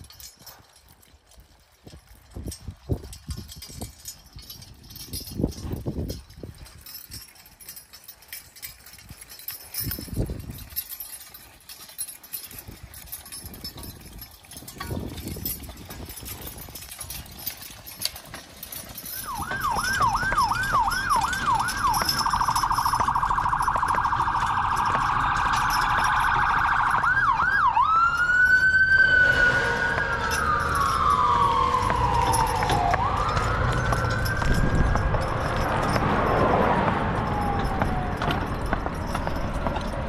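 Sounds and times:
emergency vehicle siren: 19.1s - 40.0s.

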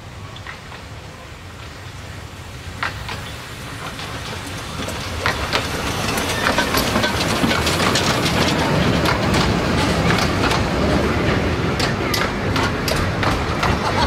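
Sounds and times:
train rumble: 0.0s - 14.0s
train wheels clicking on rail joints: 0.1s - 14.0s.

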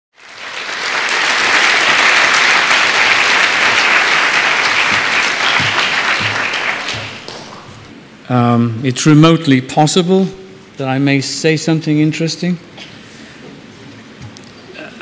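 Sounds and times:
audience applauding: 0.2s - 7.9s.

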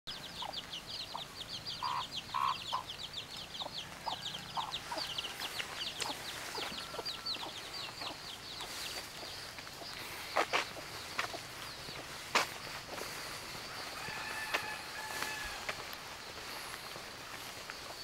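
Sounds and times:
chicks peeping: 0.1s - 18.0s
chicken clucks: 0.2s - 12.1s.

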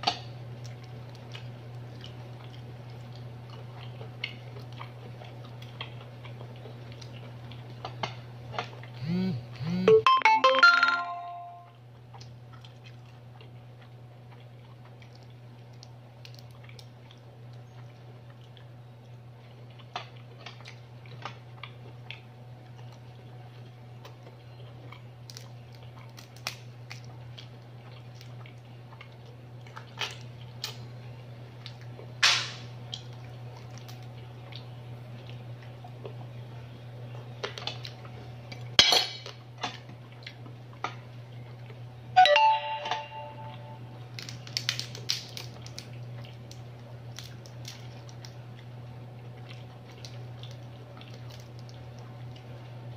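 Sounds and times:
steady low hum: 0.0s - 38.8s
chewing: 0.6s - 9.6s, 12.0s - 30.9s, 32.9s - 36.4s, 39.7s - 41.8s, 44.2s - 52.7s
crab shell cracking: 14.8s - 17.6s, 25.2s - 28.4s, 44.1s - 48.6s, 49.4s - 52.4s.

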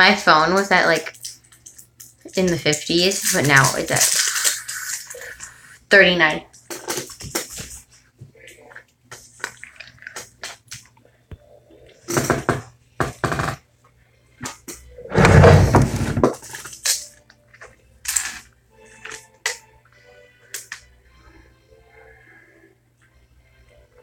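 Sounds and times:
small objects knocking and rattling: 1.0s - 5.5s
wooden drawer scraping on desk: 15.1s - 16.4s.

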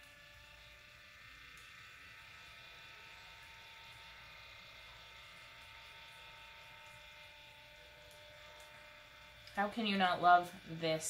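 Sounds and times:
small motor humming: 0.0s - 11.0s.

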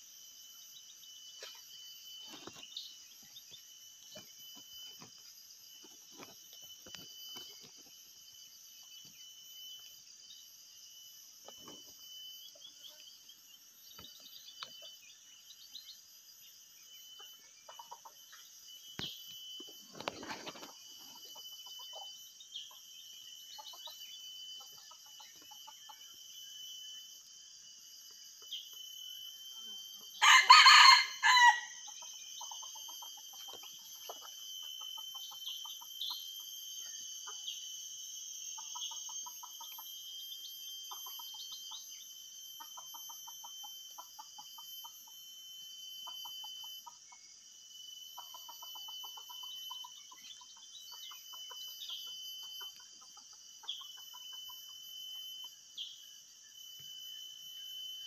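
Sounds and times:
high insect drone: 0.0s - 58.0s
rooster crowing: 30.2s - 31.8s.

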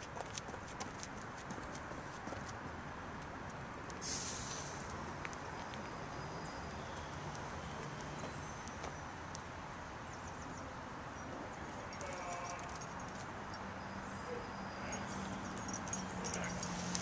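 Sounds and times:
dog collar tags jingling: 11.2s - 13.8s, 14.7s - 17.0s.

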